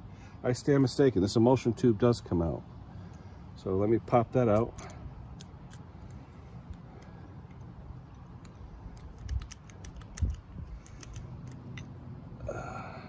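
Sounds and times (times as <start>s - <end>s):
metal pick clicking and scraping: 4.4s - 12.0s.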